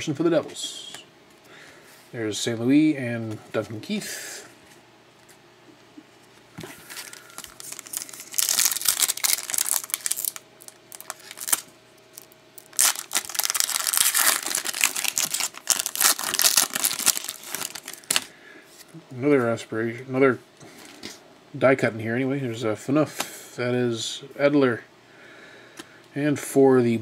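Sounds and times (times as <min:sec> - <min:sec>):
foil wrapper tearing and crinkling: 0:06.8 - 0:18.3.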